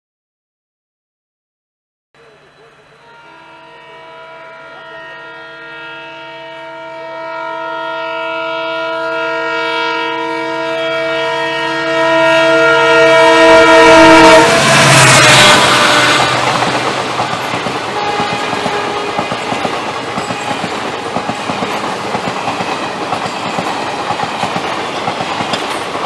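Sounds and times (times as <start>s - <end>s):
locomotive air horn blast: 2.3s - 17.1s, 17.8s - 20.2s
locomotive engine and wheel noise: 15.6s - 26.0s.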